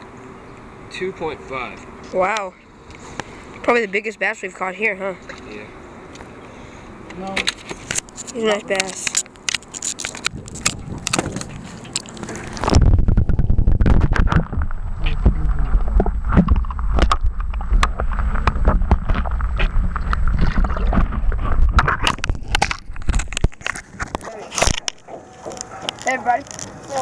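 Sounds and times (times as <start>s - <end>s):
underwater sloshing and bubbling: 9.7s - 27.0s.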